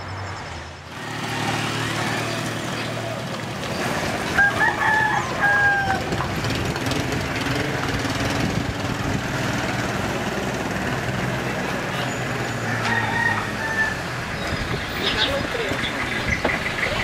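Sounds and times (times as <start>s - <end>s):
rooster crowing: 4.3s - 6.2s, 12.6s - 14.2s.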